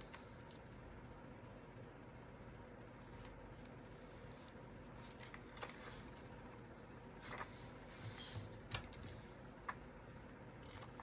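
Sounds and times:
paper rustling: 3.1 - 6.3, 7.1 - 11.0.

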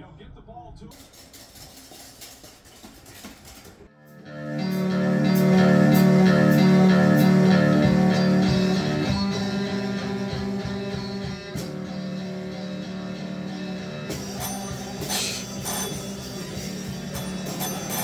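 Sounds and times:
electric guitar music: 3.9 - 18.0.

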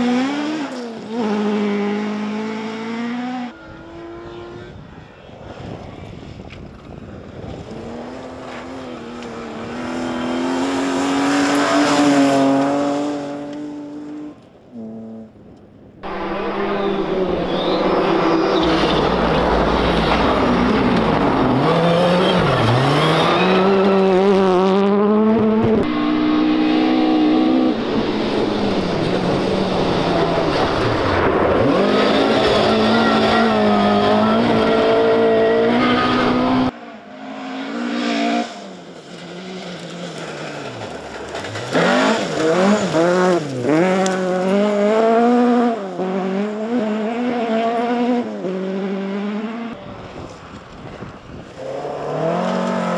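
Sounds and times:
rally car engines revving: 0.0 - 15.4, 16.0 - 52.9
car accelerating away: 16.0 - 38.6.

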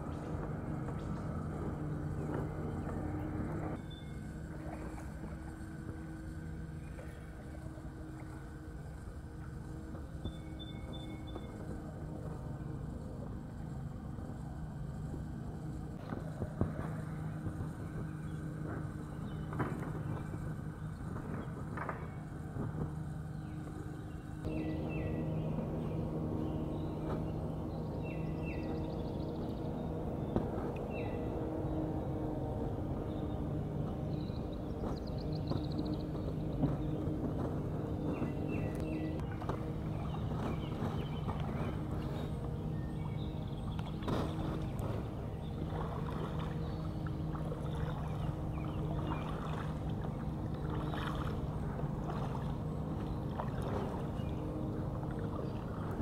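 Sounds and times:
paddle splashing in water: 0.0 - 13.9, 34.2 - 56.0
low engine drone: 0.0 - 56.0
river ambience: 0.0 - 56.0
steady low hum: 0.0 - 56.0.

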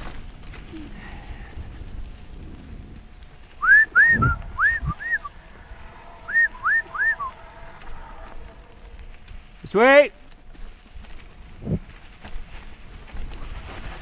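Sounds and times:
person whistling: 3.6 - 5.3, 6.3 - 7.3.

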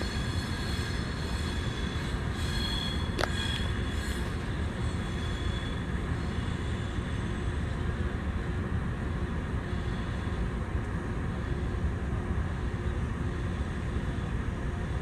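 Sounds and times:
train wheel squeals: 0.0 - 8.1
train rumbling: 0.0 - 15.0.

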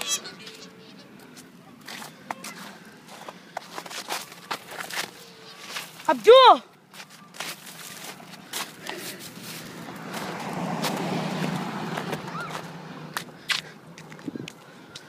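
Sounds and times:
car passing: 0.0 - 15.0
footsteps in snow: 1.2 - 12.7.

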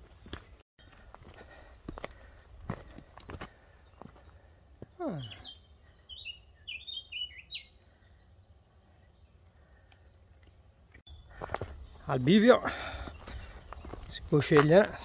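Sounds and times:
footstep on trail: 0.0 - 5.4, 9.9 - 15.0
small birds chirping: 0.0 - 15.0.

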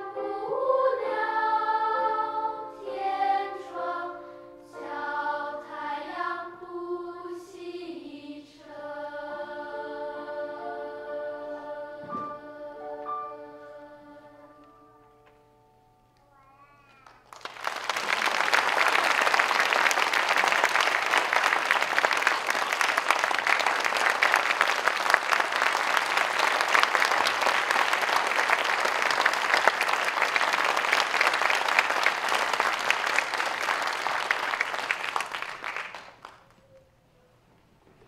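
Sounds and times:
audience applause: 17.0 - 36.6.

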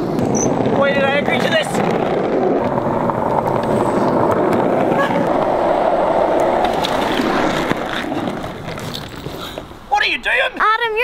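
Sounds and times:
skateboard wheels rolling on asphalt: 0.0 - 10.6.

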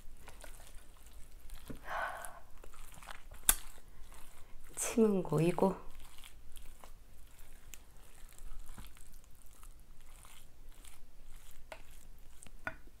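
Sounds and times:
spoon scraping in bowl: 2.7 - 12.5.

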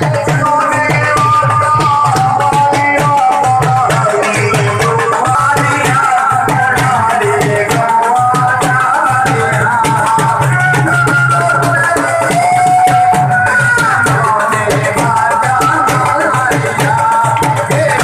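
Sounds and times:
hand drum beats: 0.0 - 18.0.

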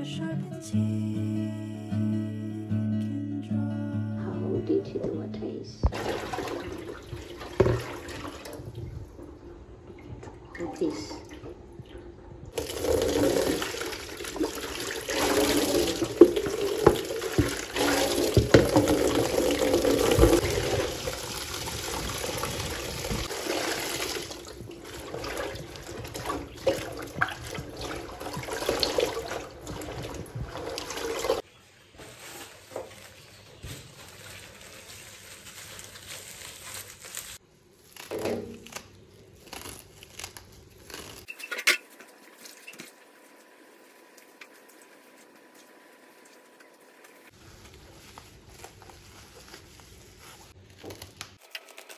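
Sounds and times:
tap water pouring into basin: 5.8 - 8.7, 12.6 - 31.4.

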